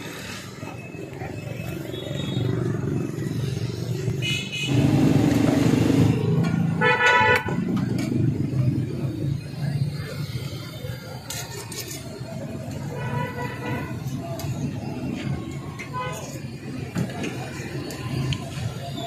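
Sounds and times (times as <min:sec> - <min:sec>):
street traffic: 0:00.0 - 0:19.0
vehicle horn blasts: 0:06.8 - 0:07.6.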